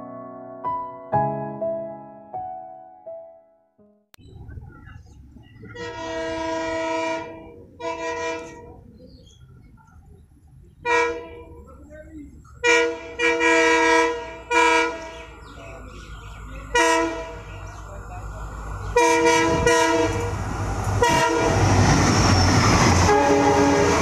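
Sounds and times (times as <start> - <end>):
low engine rumble: 4.2 - 24.0
locomotive air horn blasts: 5.7 - 8.7, 12.6 - 15.3, 16.7 - 17.5, 19.0 - 20.4, 21.0 - 21.8, 23.0 - 24.0.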